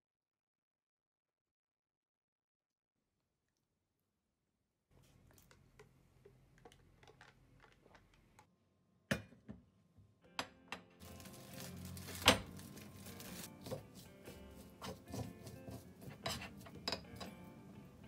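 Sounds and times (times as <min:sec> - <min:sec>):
plastic wrap crinkling: 0:11.0 - 0:13.6
plate and utensils knocking on cooktop: 0:16.0 - 0:17.4.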